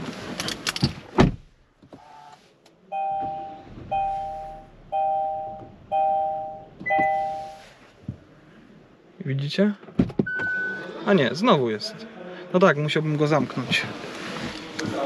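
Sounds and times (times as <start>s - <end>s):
thump: 1.2s - 1.5s
two-note warning chime: 3.0s - 7.6s.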